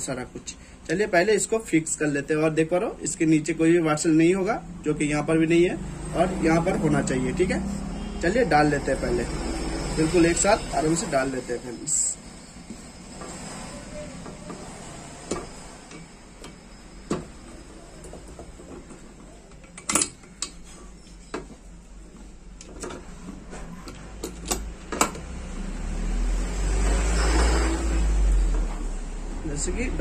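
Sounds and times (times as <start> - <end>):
metal parts clicking and knocking: 18.0 - 20.7, 23.9 - 25.3.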